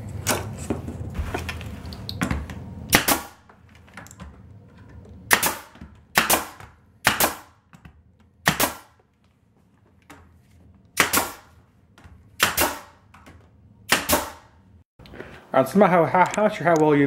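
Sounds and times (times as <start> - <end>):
nail gun firing: 2.9 - 3.4, 5.3 - 7.6, 8.4 - 9.0, 11.0 - 11.5, 12.4 - 13.0, 13.9 - 14.5.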